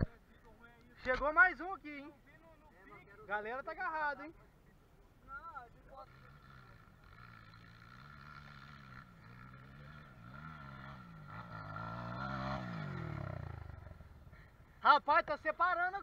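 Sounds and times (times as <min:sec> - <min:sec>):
dirt bike engine labouring: 0:05.9 - 0:14.7.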